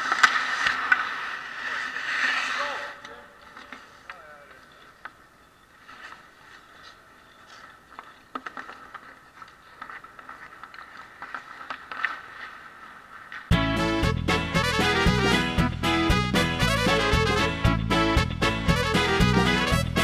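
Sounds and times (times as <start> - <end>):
hockey sticks clicking: 0.0 - 13.5
skates scraping ice: 0.0 - 13.5
faint arena background: 0.0 - 20.0.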